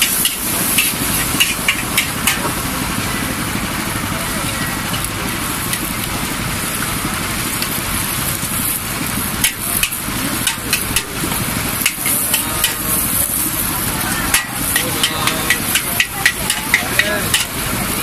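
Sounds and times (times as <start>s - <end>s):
metal spatula clanking on wok: 0.0s - 2.6s, 9.4s - 11.2s, 11.8s - 13.1s, 14.3s - 17.6s
gas burner rushing: 0.0s - 18.0s
noodles sizzling in a wok: 0.0s - 18.0s.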